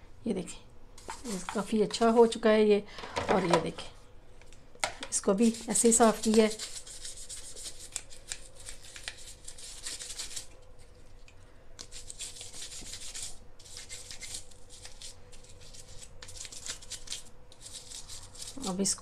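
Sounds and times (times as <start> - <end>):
faint steady hum: 0.0 - 19.0
toothbrush scrubbing plastic: 1.0 - 1.7, 5.2 - 19.0.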